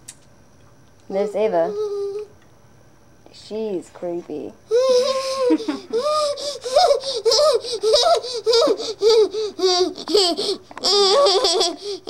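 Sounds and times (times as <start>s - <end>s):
girl laughing: 4.7s - 12.0s.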